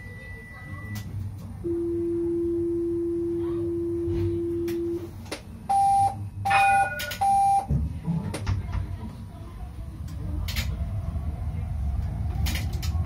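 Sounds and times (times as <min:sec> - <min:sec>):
tram warning beeps: 0:00.0 - 0:07.7
tram rumbling: 0:00.0 - 0:13.0.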